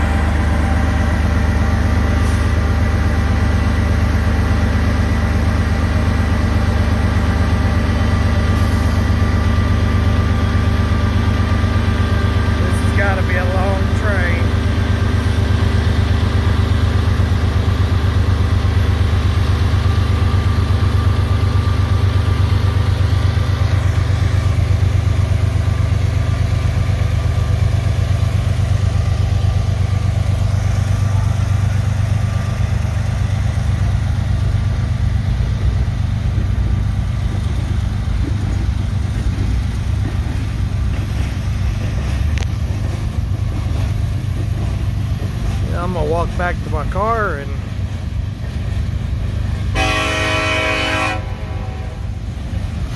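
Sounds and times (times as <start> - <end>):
hopper cars rolling by: 0.0 - 3.8, 19.4 - 49.8
diesel locomotives rumbling: 0.0 - 52.9.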